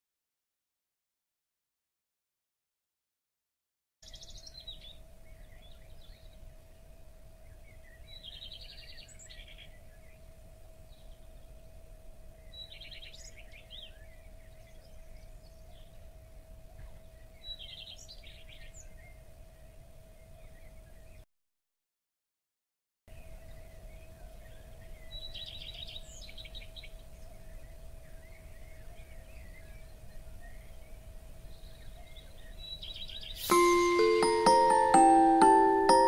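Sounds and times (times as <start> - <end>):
faint steady hum: 4.1 - 21.2
songbird chirping: 31.5 - 36.0.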